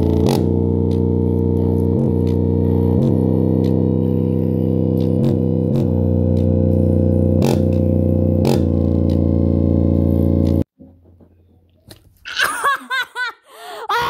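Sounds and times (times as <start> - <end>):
distorted bass note from speaker: 0.0 - 10.7.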